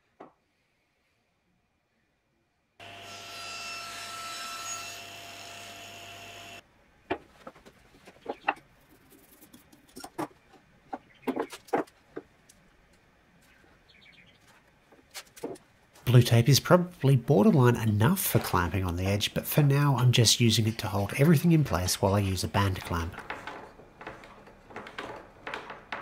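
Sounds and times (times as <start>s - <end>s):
wooden strips knocking on workbench: 23.2s - 26.0s.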